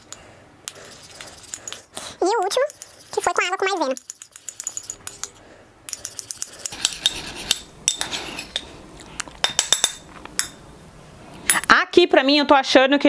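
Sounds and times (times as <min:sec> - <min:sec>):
metal spoon clinking in a dish: 0:02.4 - 0:05.3, 0:09.4 - 0:10.6.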